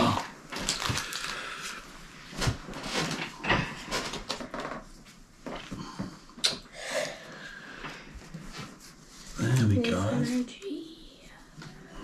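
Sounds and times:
cards and foil pack rustling: 0.5 - 1.8, 9.4 - 10.4.

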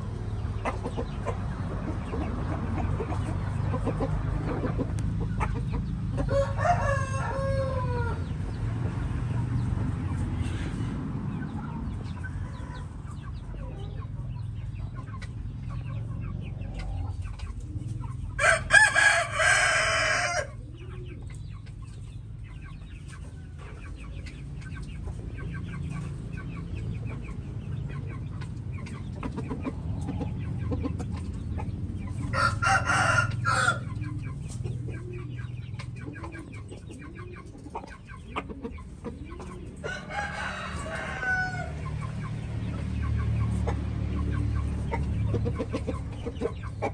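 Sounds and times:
rooster crowing: 6.2 - 8.3, 18.4 - 20.5, 32.3 - 33.9, 39.8 - 41.8.

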